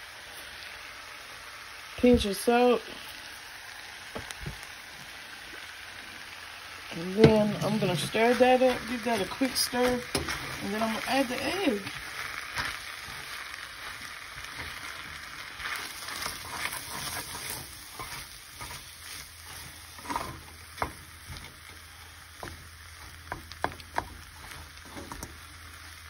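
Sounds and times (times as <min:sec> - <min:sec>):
rice sizzling in a skillet: 0:00.0 - 0:26.0
spatula scraping a pan: 0:07.2 - 0:25.9
spatula tapping a pan: 0:20.7 - 0:21.6, 0:22.4 - 0:25.4.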